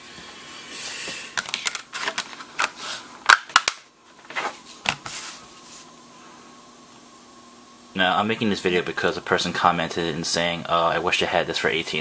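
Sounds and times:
plastic cover clicking into place: 1.4s - 3.8s.

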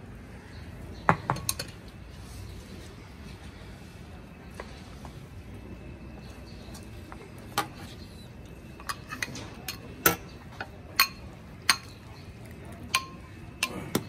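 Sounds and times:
metal ladle clinking: 8.8s - 12.1s, 12.9s - 14.0s.

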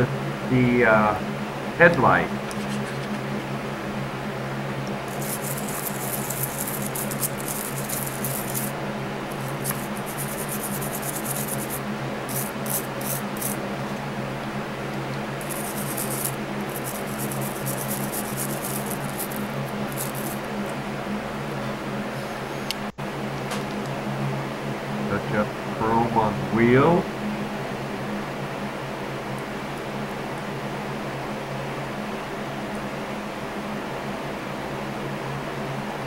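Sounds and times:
steady low hum: 0.0s - 36.0s
toothbrush scrubbing plastic parts: 5.1s - 8.7s, 9.3s - 13.6s, 15.4s - 20.5s.

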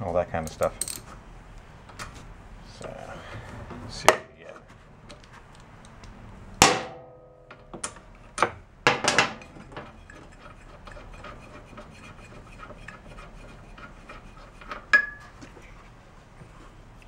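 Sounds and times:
wrench clinking on metal: 0.5s - 1.1s.

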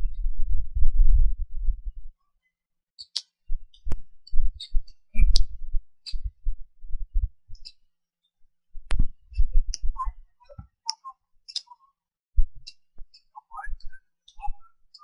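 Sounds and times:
wind buffeting microphone: 0.0s - 2.1s
small clicks: 10.5s - 11.8s.

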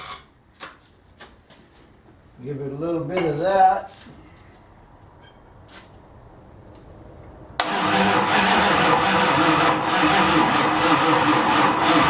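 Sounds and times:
starter cranking engine: 7.6s - 12.0s.

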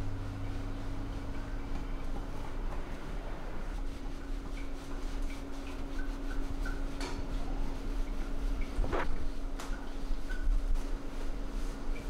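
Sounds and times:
steady mechanical hum: 0.0s - 12.0s
towel rubbing wet dog fur: 3.6s - 12.0s.

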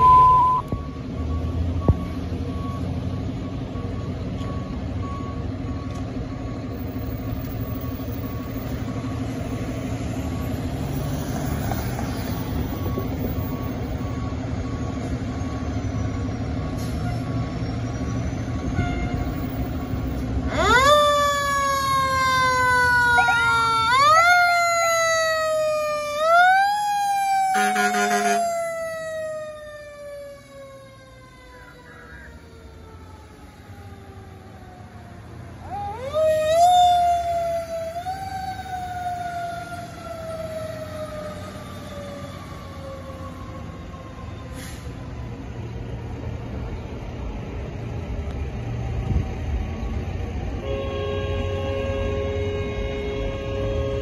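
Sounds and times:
horn blast: 0.0s - 0.7s, 27.5s - 28.5s
faint repeating beep: 0.0s - 0.9s
siren whooping: 0.0s - 1.0s, 20.5s - 44.5s
fire engine diesel rumbling: 0.0s - 54.0s.

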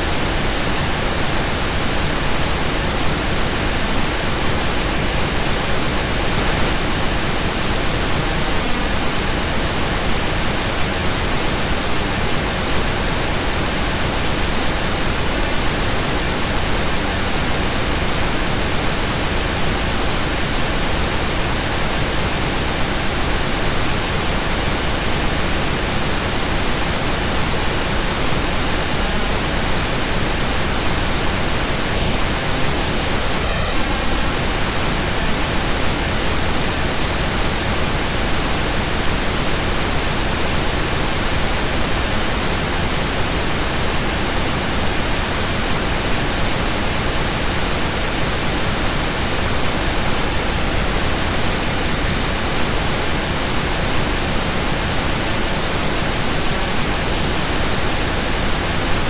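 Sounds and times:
synthesized noise hiss: 0.0s - 59.0s.

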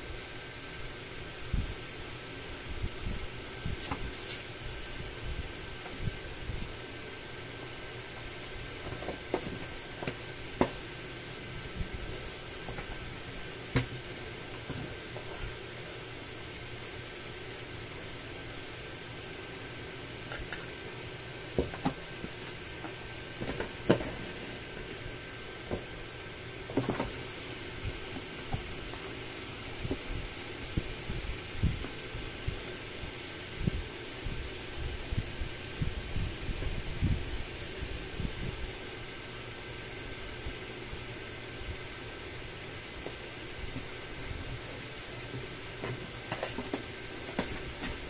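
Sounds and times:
steady hiss: 0.0s - 48.0s
kittens pawing at cardboard box: 3.6s - 4.7s, 7.7s - 15.9s, 20.2s - 20.8s, 21.5s - 32.8s, 42.9s - 48.0s
paws tapping on cardboard box: 8.2s - 10.9s, 13.7s - 15.6s, 21.5s - 24.4s, 26.6s - 27.3s, 45.3s - 48.0s.

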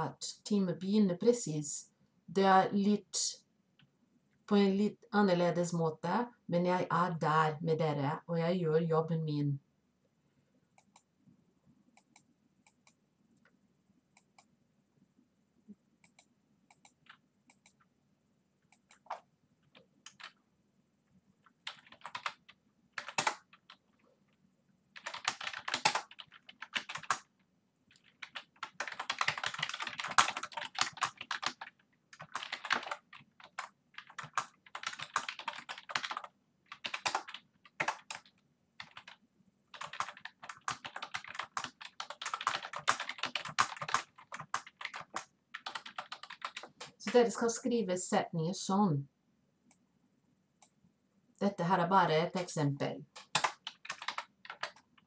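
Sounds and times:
computer keyboard typing: 16.0s - 17.8s, 18.7s - 20.4s, 21.4s - 23.8s, 25.0s - 27.3s, 27.9s - 47.2s, 53.2s - 55.0s.

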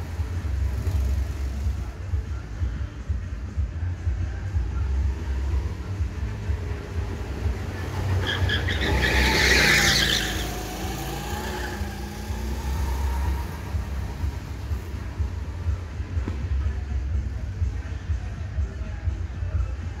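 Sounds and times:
go-kart engine humming: 0.0s - 19.7s
tyres skidding on asphalt: 4.9s - 15.3s.

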